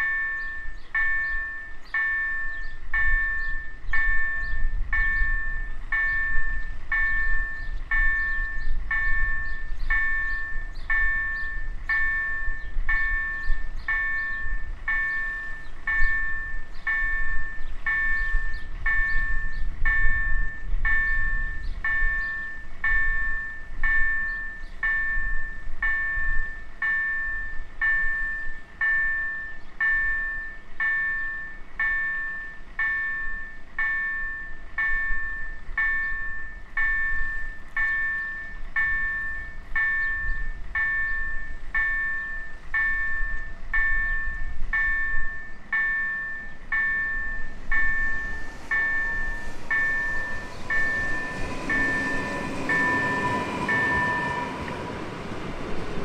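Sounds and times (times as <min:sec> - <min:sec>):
level-crossing warning bell: 0:00.0 - 0:56.0
low rumble: 0:38.6 - 0:56.0.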